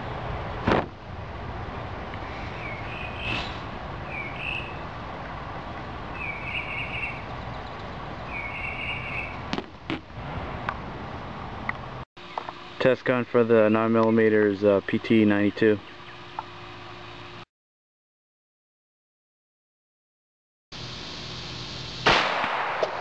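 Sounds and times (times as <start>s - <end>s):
birds chirping: 2.2s - 9.5s, 13.4s - 16.8s.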